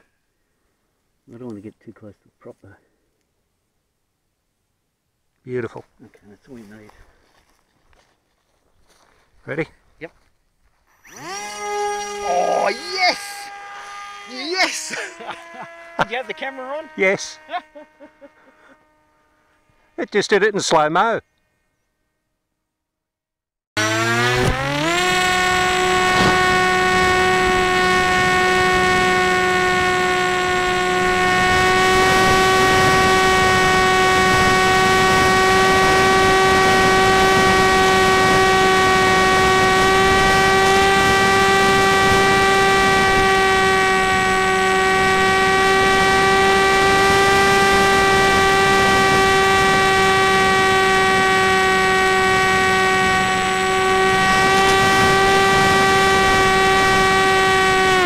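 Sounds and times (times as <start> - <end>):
model plane motor whine: 10.9 - 20.2, 23.8 - 58.0.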